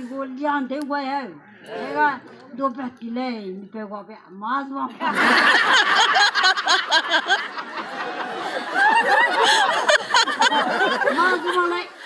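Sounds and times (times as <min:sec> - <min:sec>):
audience laughing: 0:05.0 - 0:12.0
woman laughing: 0:08.3 - 0:11.9.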